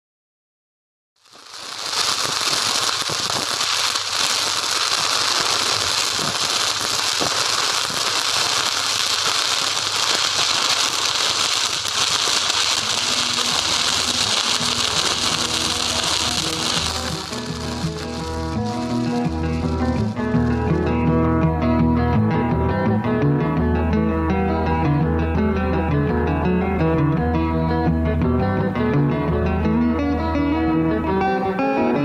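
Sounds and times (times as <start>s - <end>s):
welding arc crackle: 1.2s - 21.1s.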